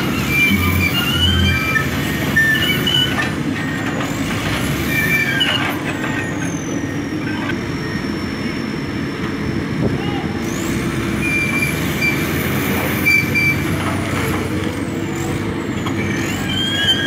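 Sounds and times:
high metallic squeals: 0:00.0 - 0:03.8, 0:04.7 - 0:08.8, 0:11.2 - 0:13.7, 0:15.8 - 0:17.0
diesel engines running: 0:00.0 - 0:17.0.

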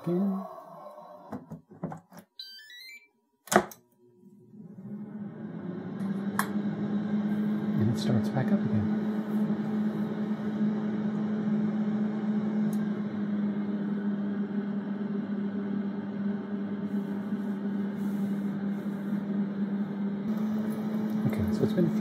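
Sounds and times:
air fryer fan motor hum: 0:04.5 - 0:22.0.

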